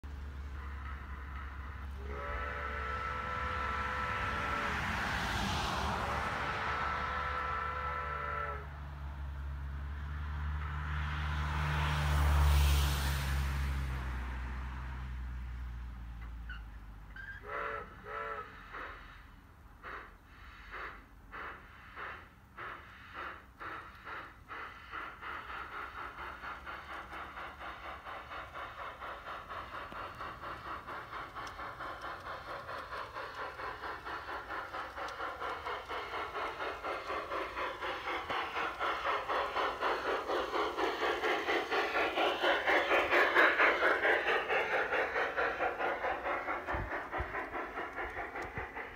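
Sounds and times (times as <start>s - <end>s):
steam locomotive chuffing: 0.0s - 48.9s
steam whistle toots: 0.5s - 8.8s, 17.2s - 19.1s.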